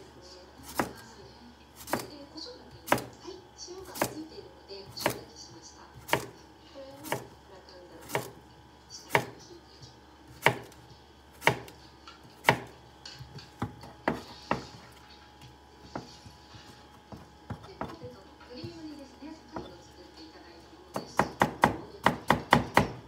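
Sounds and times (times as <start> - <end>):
knife slicing cucumber on board: 0.6 - 1.0, 1.8 - 2.2, 2.8 - 3.2, 3.9 - 4.2, 4.9 - 5.3, 6.0 - 6.4, 7.0 - 7.3, 8.0 - 8.4, 9.1 - 9.4, 10.3 - 10.8, 11.4 - 11.8, 12.4 - 14.9.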